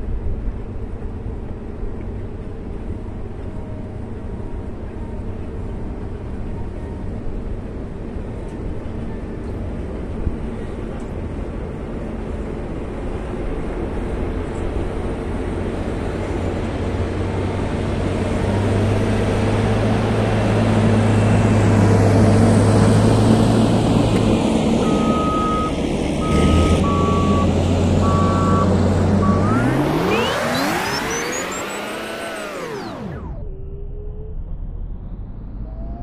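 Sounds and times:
diesel engine under load: 0:00.0 - 0:36.0
fast rising sweep: 0:24.7 - 0:36.0
short high beeps: 0:24.8 - 0:33.0.

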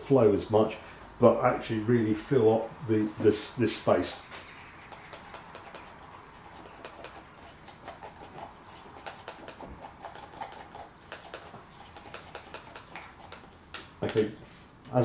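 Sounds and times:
stick scraping in plastic cup: 0:04.4 - 0:13.6.

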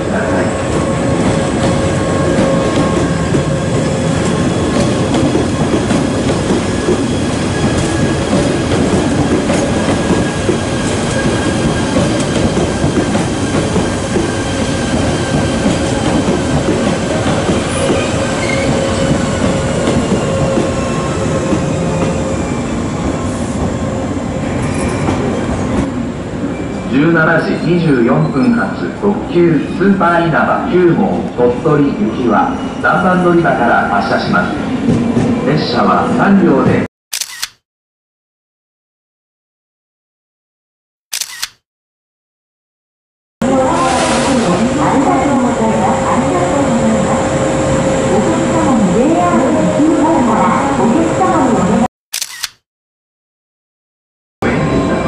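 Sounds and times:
train wheels clattering on rails: 0:00.8 - 0:22.6.

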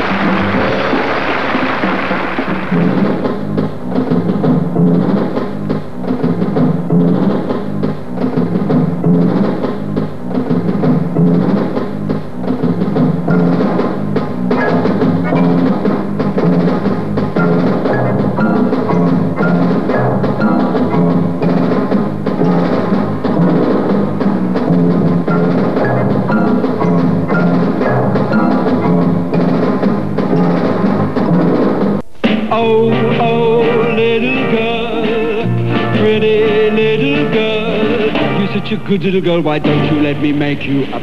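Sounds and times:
higher pitched musical notes: 0:00.0 - 0:03.2
drums and timpani beat: 0:00.0 - 0:41.0.

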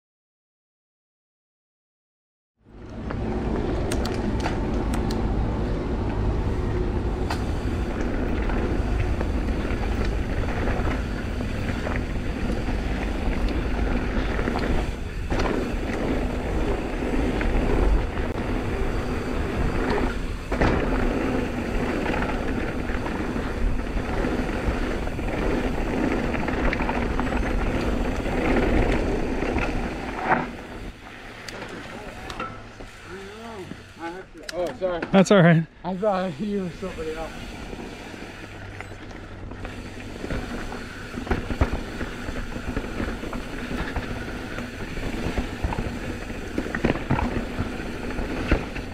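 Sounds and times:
mountain bike tyre rush: 0:02.9 - 0:48.9
bike knocks and rattles: 0:07.2 - 0:30.8, 0:38.8 - 0:48.9.

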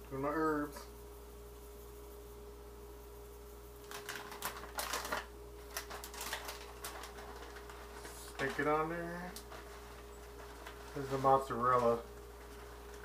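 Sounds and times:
faint steady hum: 0:00.0 - 0:13.0
plastic food packet crinkling: 0:03.8 - 0:13.0.

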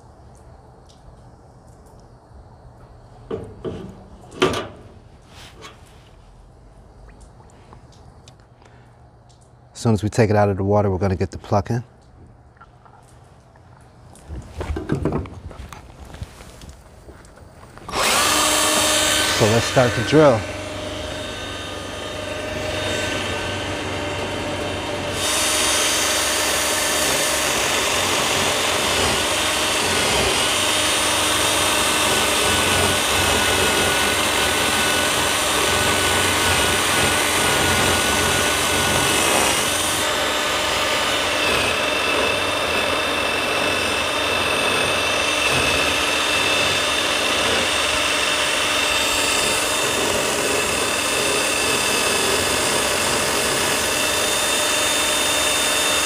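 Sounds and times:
cordless drill spinning: 0:17.8 - 0:56.0.

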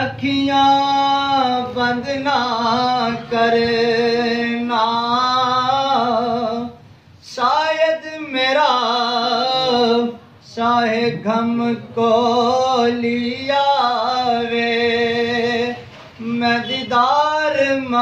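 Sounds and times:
man singing devotional chant: 0:00.0 - 0:18.0.

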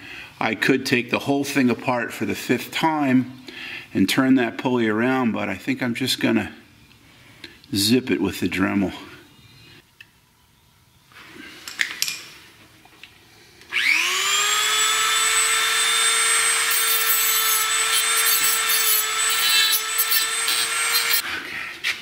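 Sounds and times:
rotary tool grinding whine: 0:13.7 - 0:21.2.

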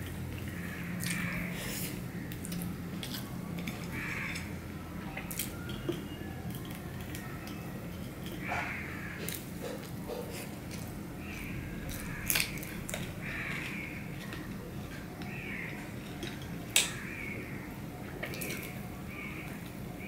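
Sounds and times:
chewing: 0:00.0 - 0:17.0, 0:18.0 - 0:19.8
fingers mixing rice on plate: 0:05.2 - 0:19.9.

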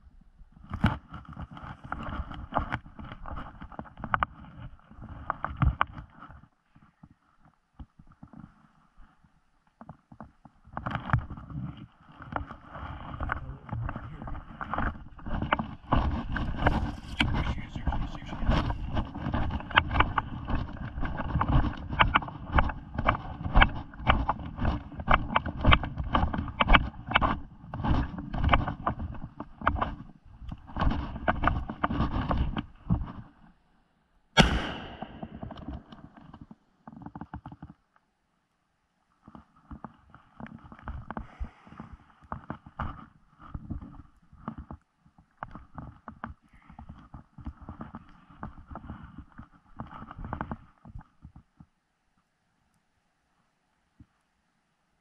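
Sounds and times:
low rumble of microphone movement: 0:00.0 - 0:33.6, 0:34.4 - 0:37.8.

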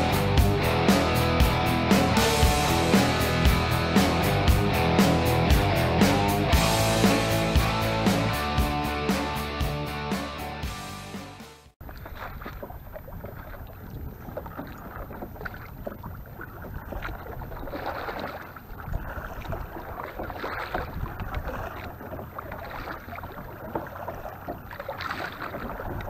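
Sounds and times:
water splashing and lapping: 0:00.0 - 0:26.0
wind rumbling on microphone: 0:18.7 - 0:22.9.

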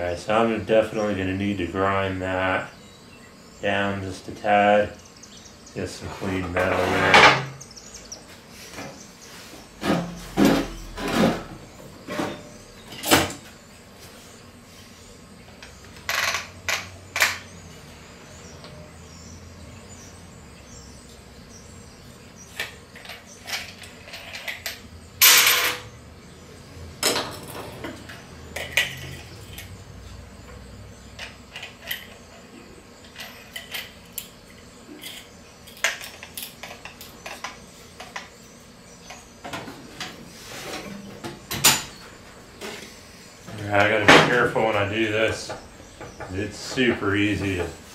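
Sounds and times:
tools clattering on steel workbench: 0:06.4 - 0:07.6, 0:22.5 - 0:25.9, 0:27.0 - 0:29.8, 0:33.0 - 0:38.4.

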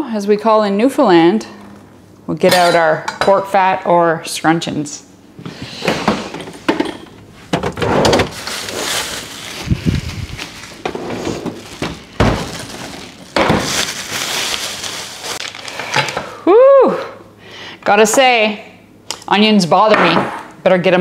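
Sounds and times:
refrigerator door opening and shutting: 0:05.7 - 0:08.8, 0:10.8 - 0:13.9
plastic bag crinkling: 0:08.2 - 0:16.2.

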